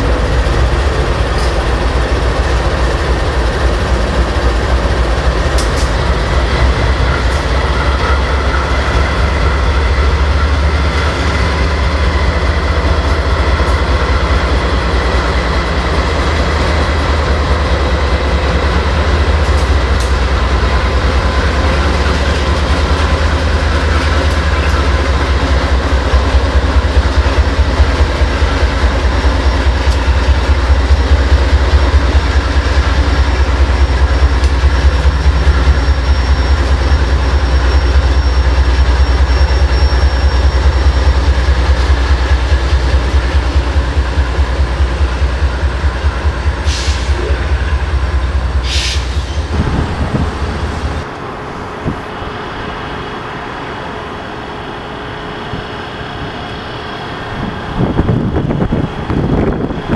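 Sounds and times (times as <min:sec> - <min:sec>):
train wheels clacking over rails: 0:00.0 - 0:52.2
locomotive engine drone: 0:00.0 - 0:59.9.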